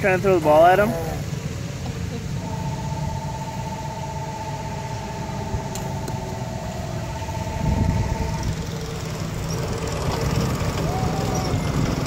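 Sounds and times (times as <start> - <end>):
small engine running: 2.3 - 12.0
low rumble: 2.4 - 9.4.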